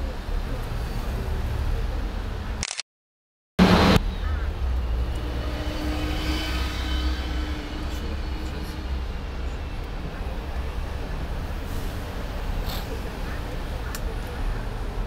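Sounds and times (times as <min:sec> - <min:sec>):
road traffic passing: 0:00.0 - 0:02.6, 0:03.6 - 0:15.0
bus engine whine: 0:03.6 - 0:15.0.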